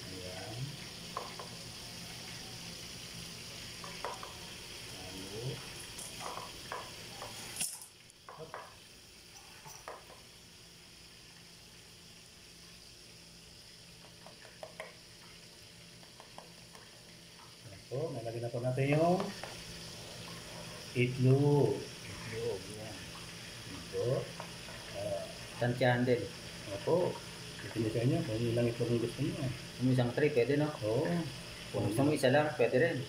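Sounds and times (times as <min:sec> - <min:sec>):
sauce sizzling in a pan: 0:00.0 - 0:33.0
spatula scraping and tapping pan: 0:03.8 - 0:04.4, 0:06.1 - 0:07.6, 0:16.0 - 0:16.9.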